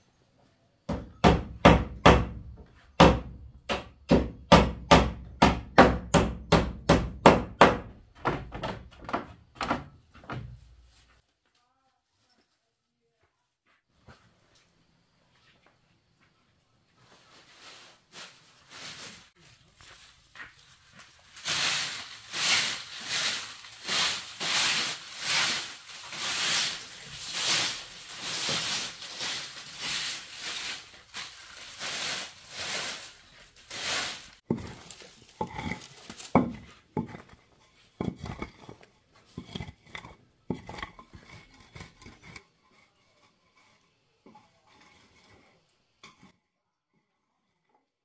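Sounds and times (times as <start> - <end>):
broom sweeping dirt floor: 10.4 - 11.3, 13.6 - 46.4.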